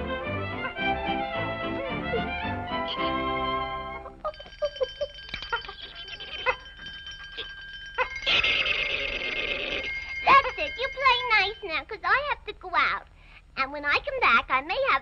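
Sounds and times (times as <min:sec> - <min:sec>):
cartoon music: 0:00.0 - 0:06.9
high bell-like ringing: 0:04.2 - 0:11.9.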